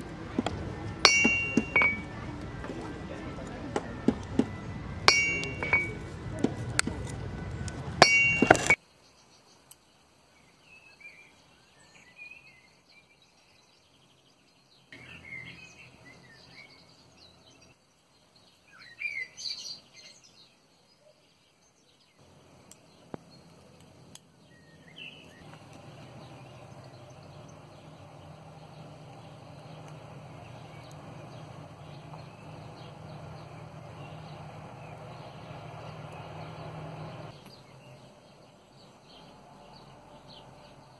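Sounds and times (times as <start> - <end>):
steady low hum: 0.0 - 8.8, 22.2 - 37.4
birds chirping: 0.0 - 40.9
steel mail rings clinking: 1.0 - 2.0, 5.1 - 5.9, 8.0 - 8.8.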